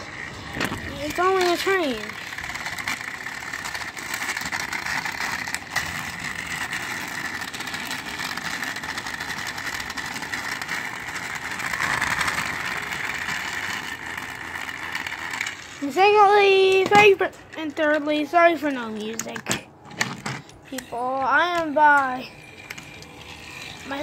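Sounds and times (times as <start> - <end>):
toy train motors whirring: 0.0 - 24.0.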